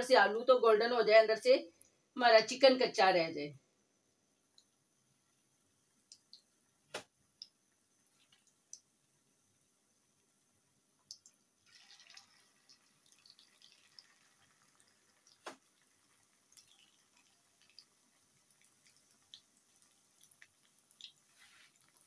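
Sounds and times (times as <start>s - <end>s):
food deep-frying in oil: 10.3s - 22.0s.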